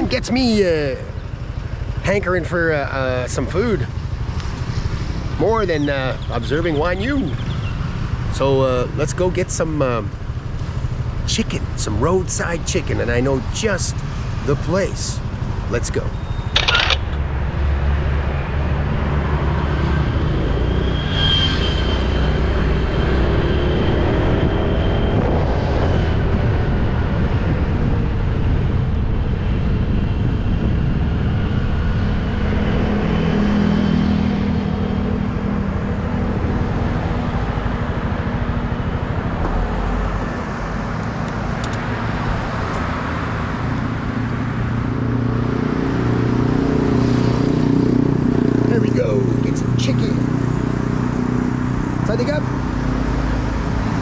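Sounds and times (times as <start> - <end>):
road noise: 0.0 - 54.0
wind noise: 22.3 - 45.4.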